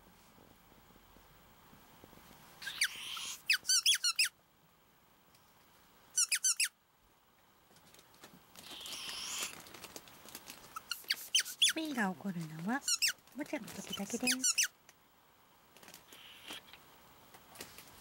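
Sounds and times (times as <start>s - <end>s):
ferret high squeaks: 2.6s - 4.3s, 6.2s - 6.8s, 8.6s - 9.6s, 10.7s - 11.9s, 12.8s - 13.2s, 13.8s - 14.7s, 16.1s - 16.7s
ferret hissing: 2.6s - 4.3s, 8.6s - 9.6s, 10.8s - 11.8s, 16.1s - 16.7s.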